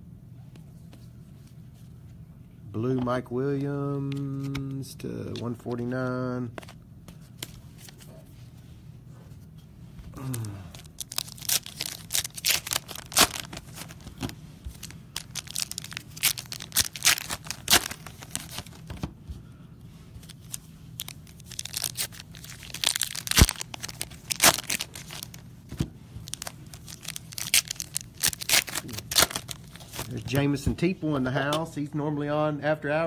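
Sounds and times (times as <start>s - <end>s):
foil wrappers crinkling and tearing: 10.2s - 19.0s, 20.2s - 25.5s, 26.2s - 30.2s.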